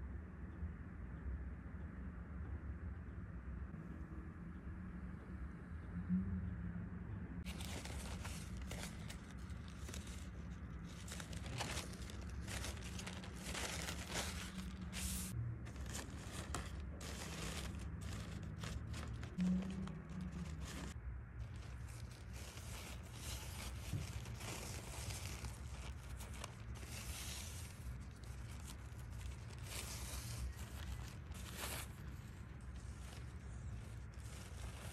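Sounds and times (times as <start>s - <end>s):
low steady hum: 0.0s - 34.9s
low rumble: 2.1s - 34.9s
packaging crinkling and rustling: 7.4s - 34.9s.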